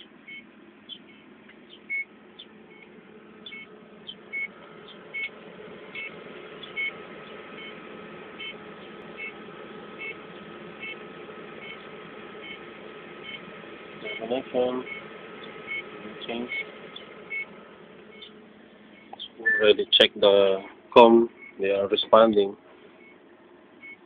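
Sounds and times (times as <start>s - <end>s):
equipment hum: 0.0s - 24.0s
thin steady whine: 0.0s - 24.0s
short high-pitched chirps: 19.0s - 19.8s.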